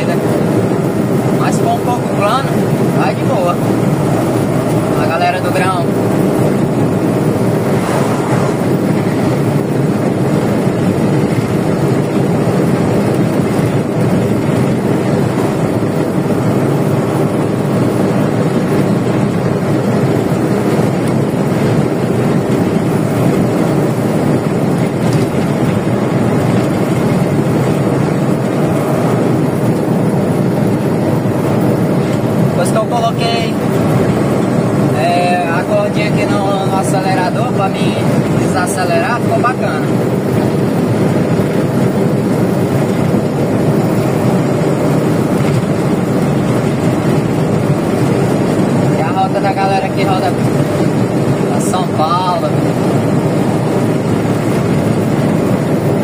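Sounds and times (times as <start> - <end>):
truck rushing past: 0.0 - 32.6
truck engine and road noise: 0.0 - 56.0.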